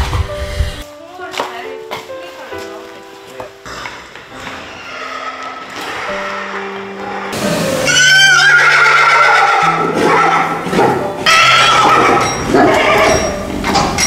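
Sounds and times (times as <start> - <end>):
soft background music: 0.0 - 14.0
horses whinnying: 3.8 - 13.8.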